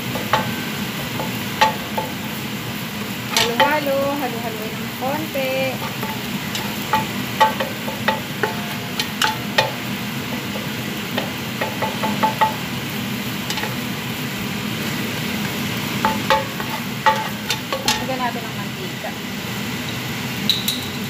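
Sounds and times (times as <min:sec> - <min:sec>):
spatula scraping and tapping a pan: 0:00.0 - 0:02.5, 0:03.3 - 0:04.3, 0:05.7 - 0:14.0, 0:14.8 - 0:18.2
oil sizzling: 0:00.0 - 0:21.0.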